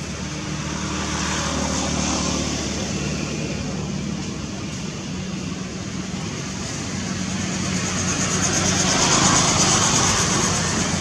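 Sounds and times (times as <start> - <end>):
engine hum: 0.0 - 11.0
outdoor background noise: 0.0 - 11.0.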